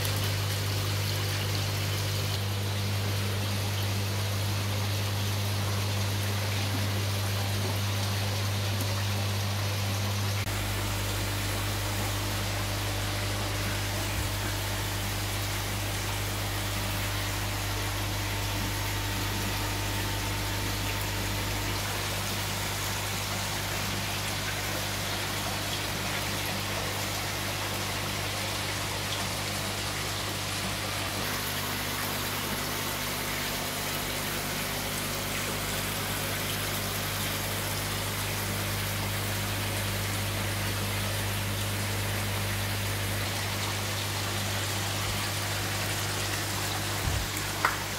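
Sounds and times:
low pump hum: 0:00.0 - 0:47.9
water rushing and bubbling: 0:00.0 - 0:47.9.

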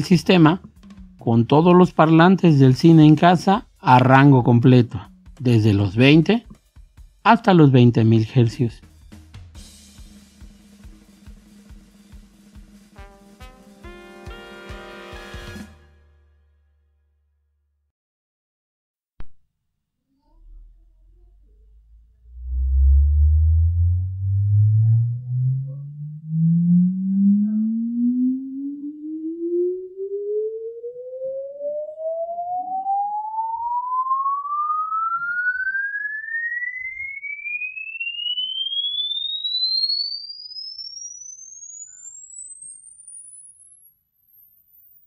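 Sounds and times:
sine tone sweeping upward: 0:20.3 - 0:45.0.

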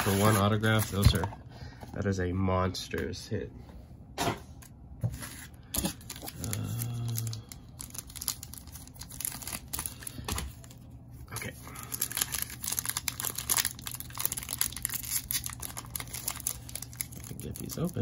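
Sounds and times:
plastic and foil crinkling: 0:00.0 - 0:01.2, 0:05.2 - 0:18.0.

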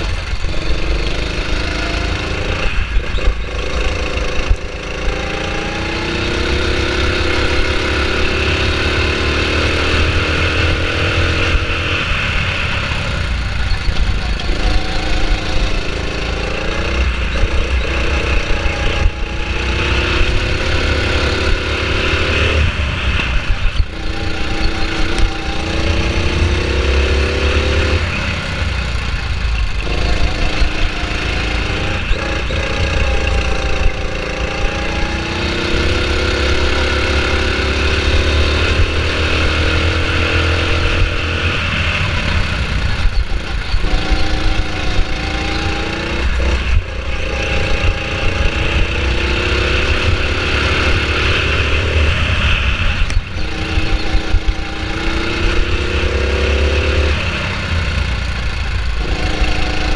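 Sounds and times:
go-kart engine accelerating: 0:00.0 - 0:59.9.

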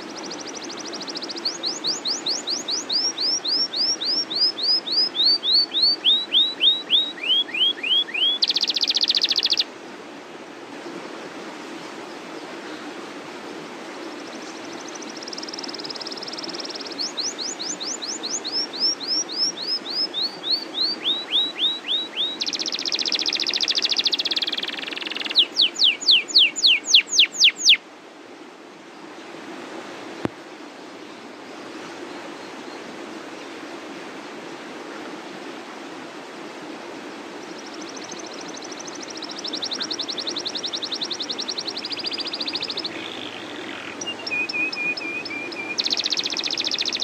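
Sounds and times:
canary singing: 0:01.1 - 0:09.6, 0:15.3 - 0:27.8, 0:37.9 - 0:47.0.

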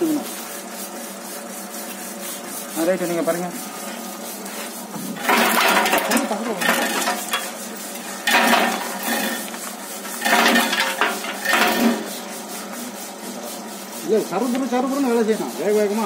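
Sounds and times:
stripping machine running: 0:05.0 - 0:12.6.

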